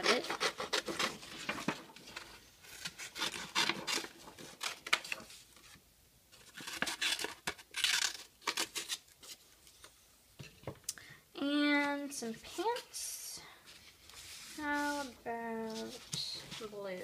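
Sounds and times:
scissors snipping paper: 0.0 - 1.2.

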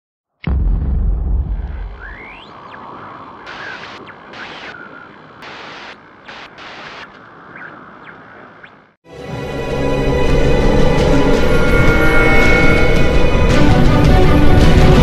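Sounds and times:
deep rumble: 0.5 - 4.3
static-like hiss with whistles: 2.0 - 9.0.

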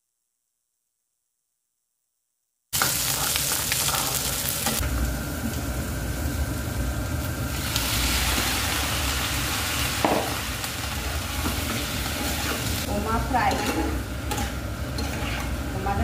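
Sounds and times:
hot oil sizzling: 2.7 - 16.0.

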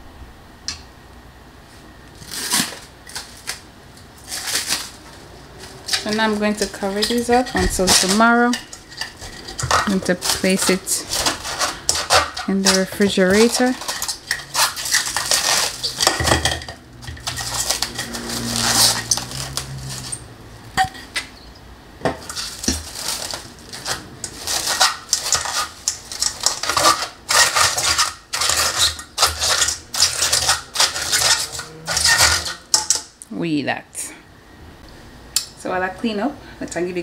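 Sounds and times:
cling wrap crinkling: 2.1 - 20.3, 22.2 - 32.9
metal bowl knocks and scrapes: 5.8 - 21.3, 23.8 - 33.0.

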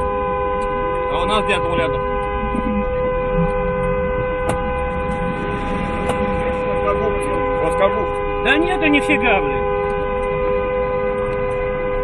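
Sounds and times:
idling traffic rumble: 0.0 - 12.0.

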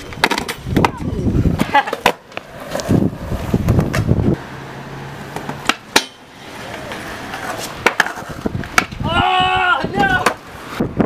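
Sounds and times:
skateboard clacks: 0.0 - 3.0, 5.2 - 9.0, 9.9 - 10.8
skateboard wheels rolling on concrete: 0.0 - 11.0.

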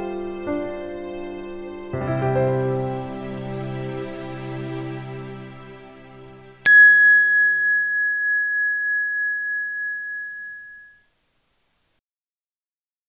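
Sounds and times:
soft background music: 0.0 - 6.7
bright bell-like chime: 6.7 - 11.0.

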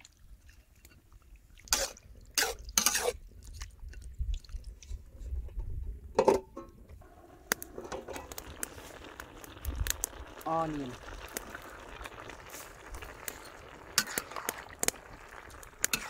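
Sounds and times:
metal spatula scraping a wok: 1.7 - 3.2, 14.0 - 14.4.

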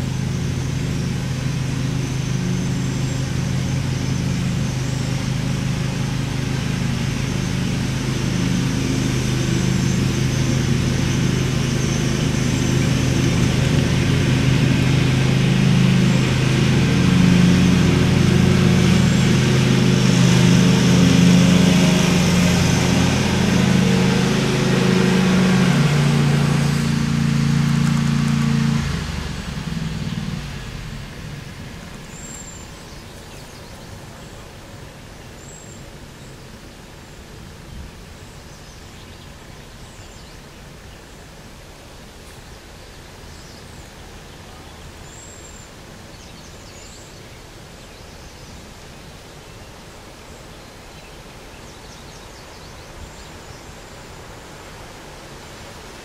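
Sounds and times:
vehicle engine running: 0.0 - 35.6.

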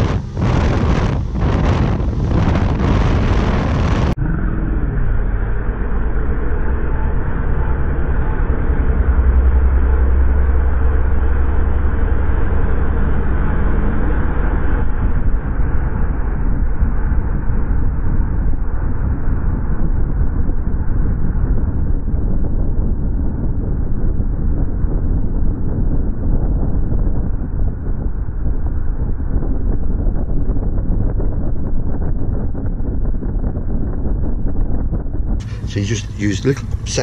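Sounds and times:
outboard engine droning: 0.0 - 37.0.

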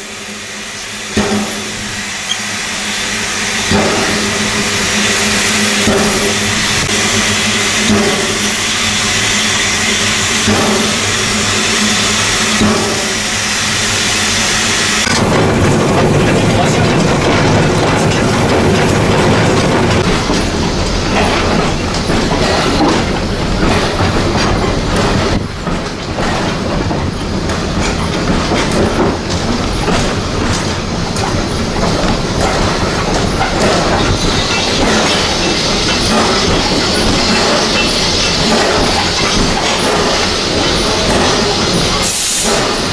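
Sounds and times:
steam hiss: 0.0 - 17.2, 32.2 - 42.9
train rumbling on rails: 0.0 - 42.9
wheels clicking over rail joints: 15.0 - 42.9.

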